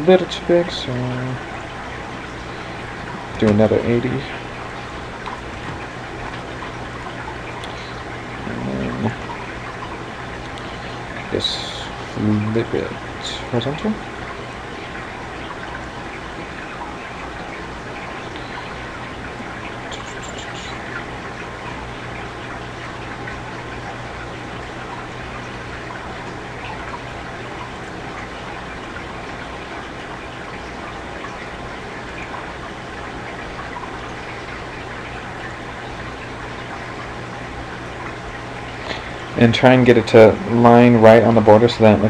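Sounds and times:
low electrical hum: 0.0 - 42.0
background hiss: 18.1 - 21.4.

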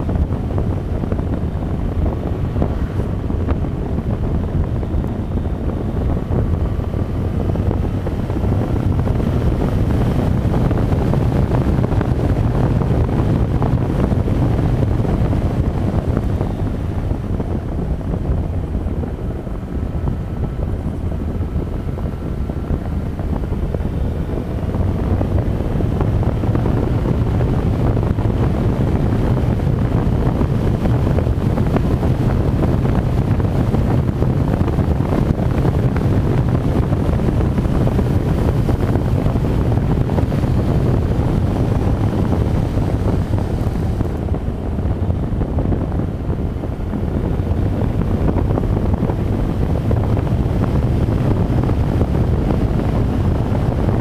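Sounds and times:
motorcycle engine running: 0.0 - 54.0
wind buffeting microphone: 0.0 - 54.0.

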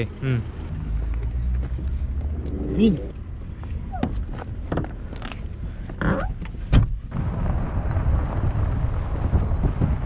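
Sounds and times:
car engine and road noise: 0.0 - 10.0
thump: 6.7 - 7.0.

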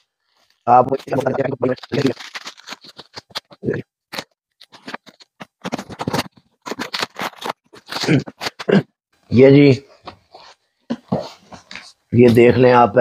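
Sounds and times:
packing tape tearing and crinkling: 0.4 - 8.8.

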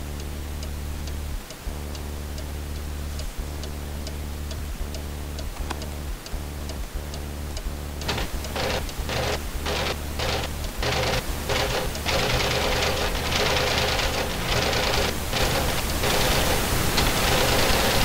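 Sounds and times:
low hum: 0.0 - 18.0
pulsing hiss: 7.0 - 18.0.

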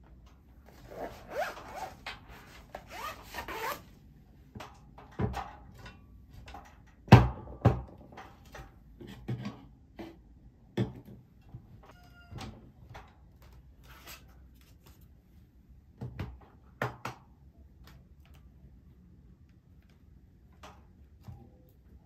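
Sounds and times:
rubbing and sliding with squeaks: 0.6 - 3.9.

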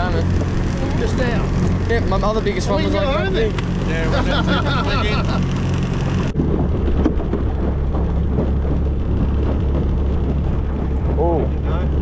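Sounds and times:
outboard motor running: 0.0 - 12.0
water noise: 0.0 - 12.0
wind: 0.0 - 12.0.

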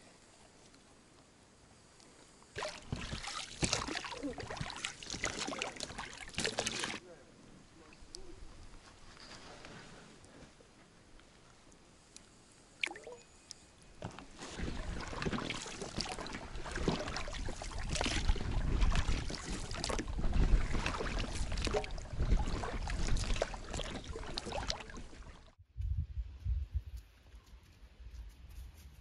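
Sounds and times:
water splashing around boat: 2.6 - 7.0, 14.0 - 25.6.

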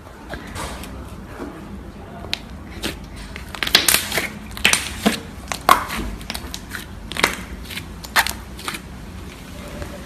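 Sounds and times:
slime squelching and popping: 2.3 - 8.9.

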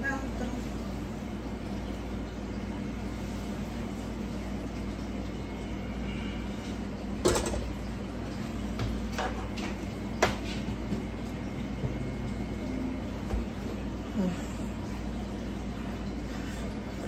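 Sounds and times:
steady low hum: 0.0 - 17.0
metal cookware clanking: 7.2 - 7.8.

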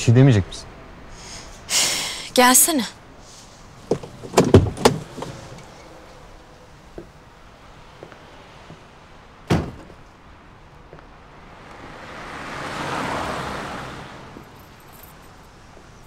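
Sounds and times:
car door slamming: 3.9 - 5.7, 9.4 - 10.0
car passing by: 4.8 - 9.3, 11.1 - 16.0.

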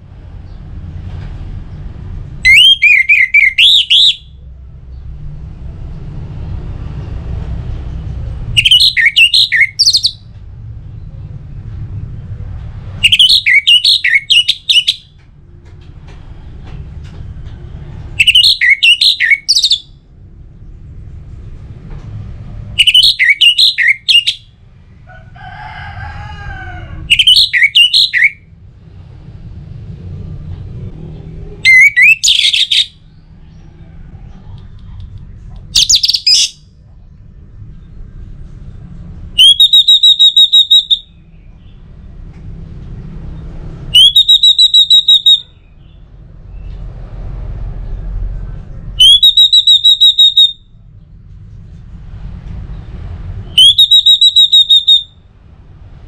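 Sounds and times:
thrush singing warbled whistles: 2.4 - 4.4, 8.5 - 10.2, 13.0 - 15.1, 18.2 - 20.0, 22.8 - 24.5, 27.1 - 28.5, 31.6 - 33.0, 35.7 - 36.7, 39.4 - 41.3, 43.9 - 45.7, 49.0 - 50.7, 53.4 - 55.3.

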